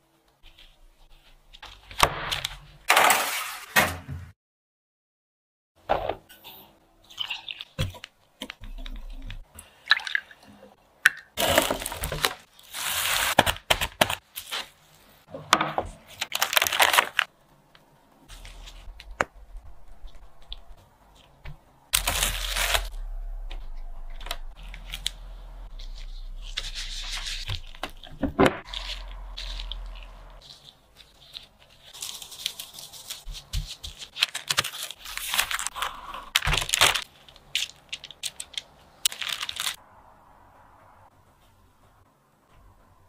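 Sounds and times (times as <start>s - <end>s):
low steady hum: 17.4s - 30.4s
rustling and scraping: 18.2s - 34.4s
dough worked by hand: 24.2s - 37.2s.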